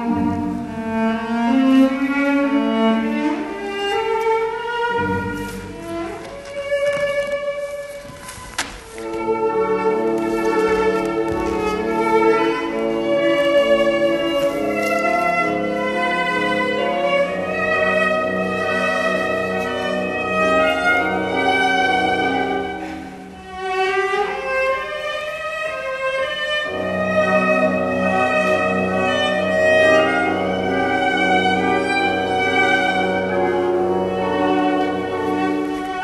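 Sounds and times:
slow cello music: 0.0 - 36.0.

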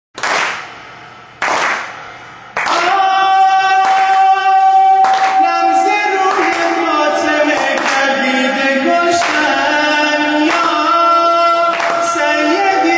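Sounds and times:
group clapping in unison: 0.2 - 0.8, 1.4 - 2.0, 2.6 - 12.9
man singing a long note: 2.6 - 12.9.

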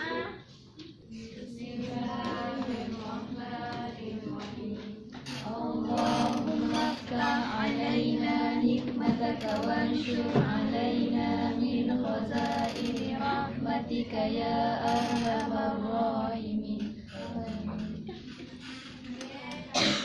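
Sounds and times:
women singing slow melody: 1.1 - 18.1.

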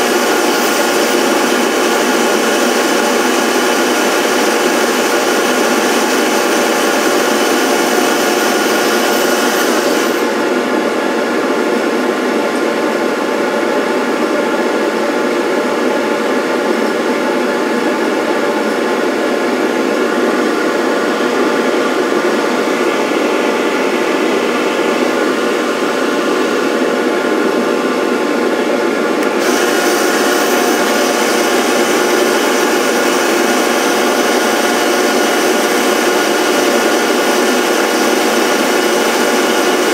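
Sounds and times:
electric motor running: 0.0 - 10.6, 29.2 - 39.9.

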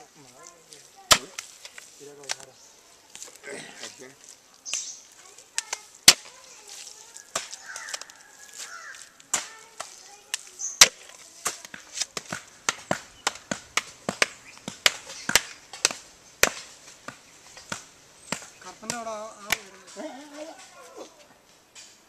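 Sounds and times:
wooden beater slapping mud wall: 1.0 - 2.5, 5.5 - 20.1.

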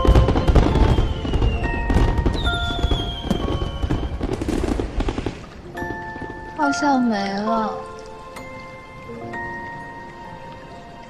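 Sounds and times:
fireworks bursting and crackling: 0.0 - 7.2
background music: 0.0 - 11.0.

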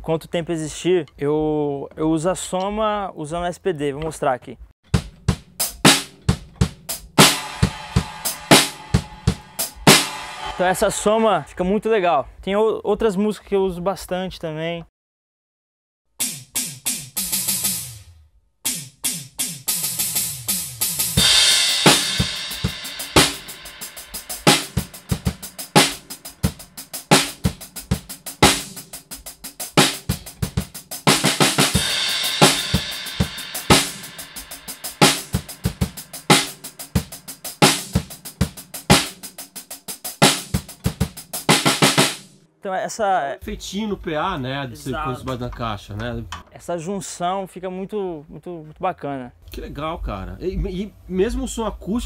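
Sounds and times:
drum groove: 4.8 - 14.4, 16.2 - 18.0, 18.6 - 42.5, 43.4 - 46.5
drum hits sweeping down in pitch: 4.9 - 11.8, 21.2 - 39.4
crash cymbal: 7.2 - 11.6, 21.0 - 29.0, 31.2 - 37.9.

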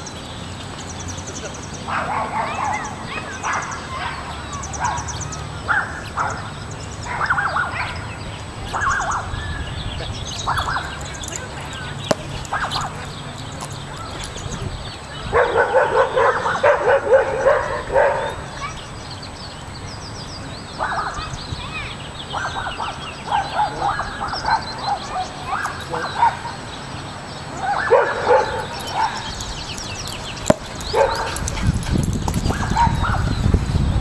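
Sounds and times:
dog barking and yipping: 1.9 - 5.1, 10.4 - 14.3, 15.3 - 18.7, 22.3 - 26.6, 27.6 - 33.4.

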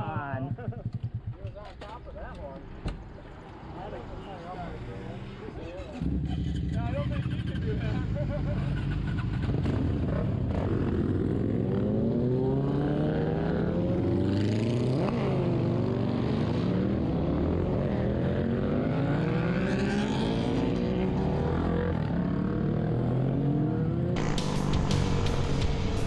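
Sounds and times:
motorcycle engines accelerating: 0.0 - 26.0
sharp engine rev: 24.2 - 26.0.

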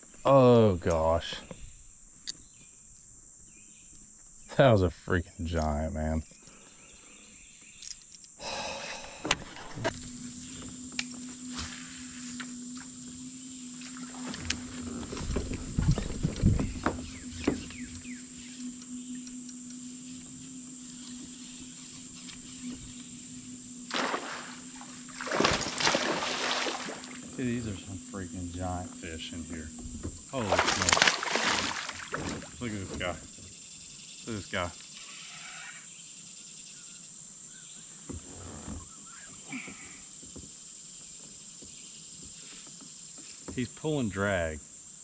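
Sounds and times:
thin high buzz: 0.0 - 44.6
crickets and insects chirping: 0.0 - 45.0
faint low hum: 0.1 - 33.6.

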